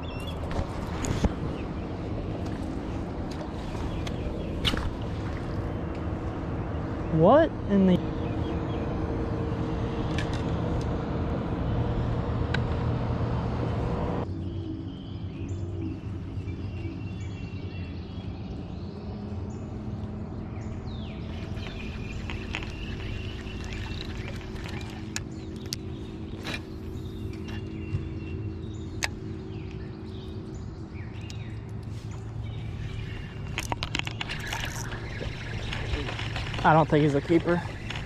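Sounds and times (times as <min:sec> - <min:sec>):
birds chirping: 0:00.0 - 0:10.5, 0:14.2 - 0:38.0
electric boat motor humming: 0:18.2 - 0:38.0.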